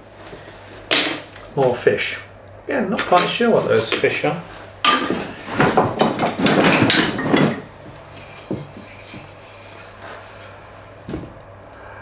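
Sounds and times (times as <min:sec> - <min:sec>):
wooden pieces clattering in a box: 0:04.8 - 0:09.2
wooden knocks: 0:04.9 - 0:09.3.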